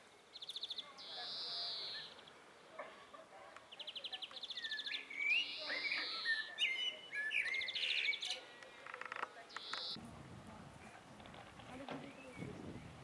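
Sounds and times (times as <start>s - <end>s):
blackbird singing: 0.3s - 2.4s, 3.7s - 8.5s, 9.5s - 10.0s, 12.0s - 13.0s.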